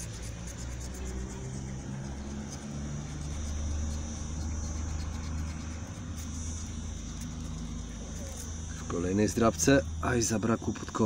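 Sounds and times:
coin scraping scratch card: 0.0 - 8.8.

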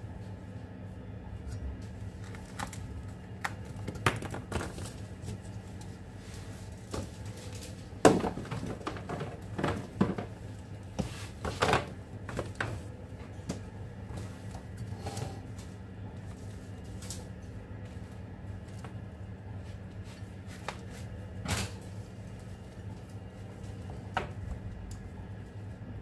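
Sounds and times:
steady low hum: 0.0 - 26.0
plastic bins knocking: 8.0 - 10.4.

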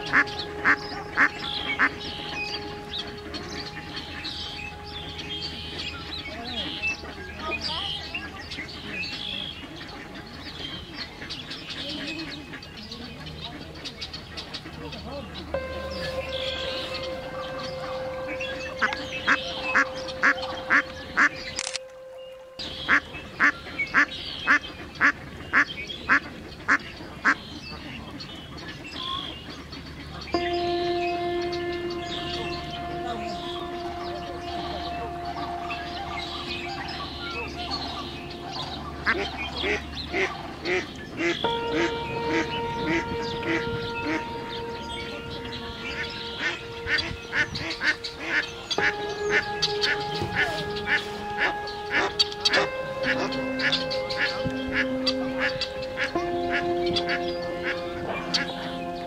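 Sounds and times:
small birds chirping: 0.0 - 59.0
steady hum: 30.4 - 59.0.

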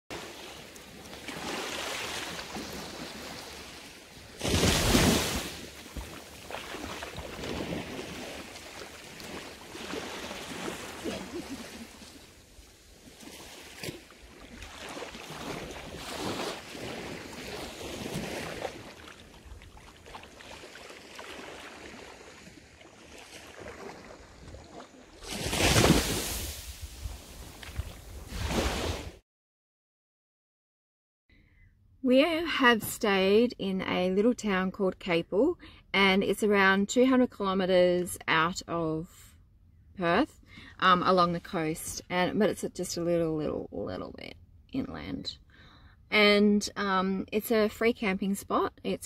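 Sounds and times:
small waves lapping on beach: 0.1 - 29.2.

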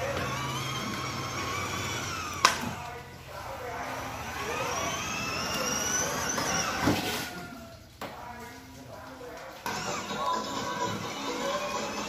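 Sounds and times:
electric toy motor whine: 0.0 - 2.7, 4.0 - 7.0, 9.7 - 12.0.

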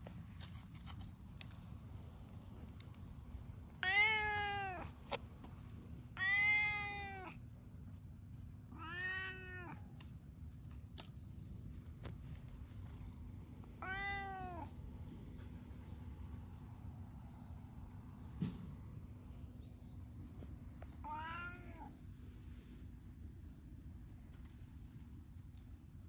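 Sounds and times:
cat meowing: 3.8 - 4.9, 6.2 - 7.4, 8.7 - 9.9, 13.8 - 14.7, 21.0 - 22.0.

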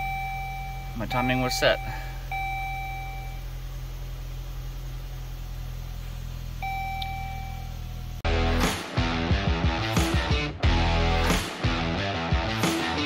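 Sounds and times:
dashboard warning beep: 0.0 - 3.7, 6.6 - 7.9
car engine idling: 0.0 - 8.2
music: 8.3 - 13.0.

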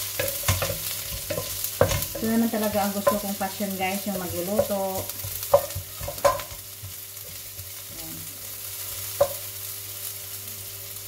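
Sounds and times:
spatula stirring: 0.0 - 8.1
onion sizzling in oil: 0.0 - 11.0
spatula knocking on pan: 0.2 - 7.8, 9.2 - 9.4.

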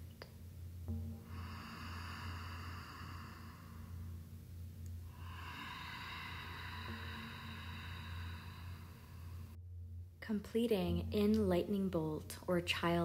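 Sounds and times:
low steady hum: 0.0 - 13.0
slow breathing: 0.9 - 9.6.

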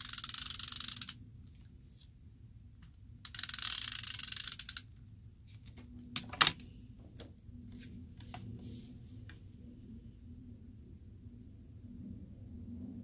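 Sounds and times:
tape runner ratcheting rattle: 0.0 - 1.2, 3.2 - 5.0.

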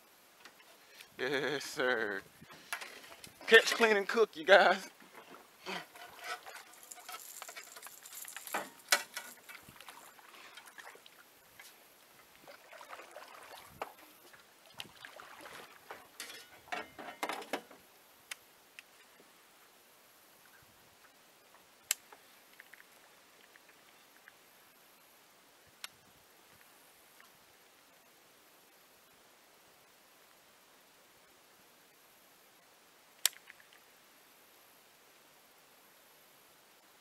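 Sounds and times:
sharp click: 33.2 - 33.6.

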